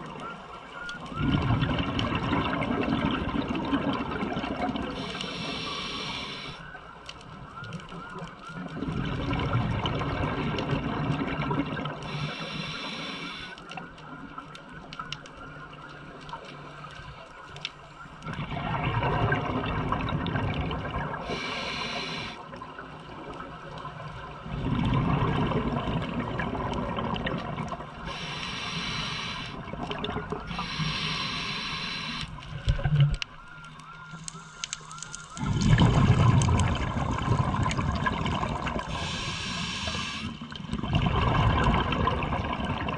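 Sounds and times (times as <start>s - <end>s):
regulator inhalation hiss: 5.0s - 6.6s, 12.1s - 13.6s, 21.2s - 22.4s, 28.1s - 29.7s, 30.5s - 32.4s, 38.9s - 40.4s
regulator exhalation bubbles: 35.4s - 42.9s.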